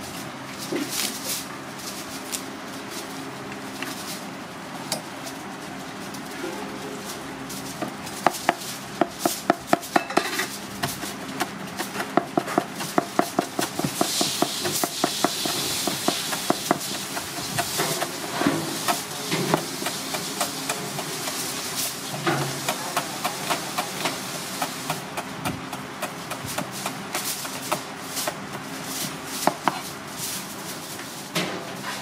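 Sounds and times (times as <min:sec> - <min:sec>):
knife chopping on cutting board: 0:29.4 - 0:29.8.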